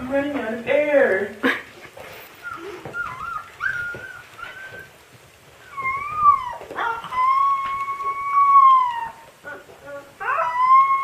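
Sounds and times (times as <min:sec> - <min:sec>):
puppy whining: 0:02.1 - 0:11.0
puppy howling: 0:02.5 - 0:04.9, 0:05.6 - 0:11.0.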